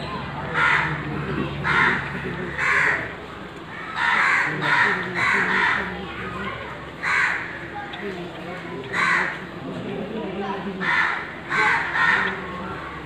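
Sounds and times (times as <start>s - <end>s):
crow cawing: 0.5s - 7.8s, 8.8s - 9.5s, 10.8s - 13.0s.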